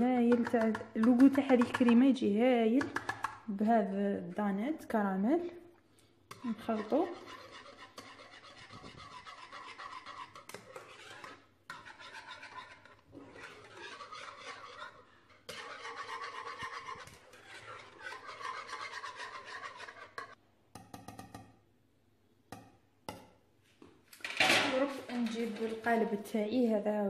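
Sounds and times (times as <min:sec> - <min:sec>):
whisk scraping metal saucepan: 0:00.0 - 0:04.4, 0:06.3 - 0:20.4, 0:24.2 - 0:26.1.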